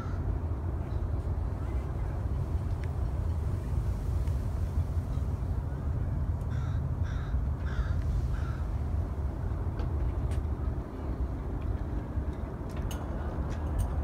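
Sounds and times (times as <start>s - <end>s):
wind rumble on microphone: 0.0s - 14.0s
crow cawing: 6.5s - 8.7s.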